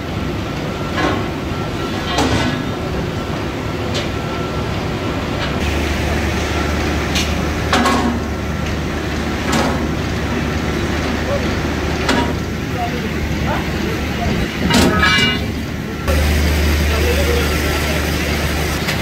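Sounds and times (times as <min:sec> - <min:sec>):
workshop machinery hum: 0:00.0 - 0:19.0
deeper steady hum: 0:05.6 - 0:19.0
sharp metallic clanks: 0:14.6 - 0:15.7.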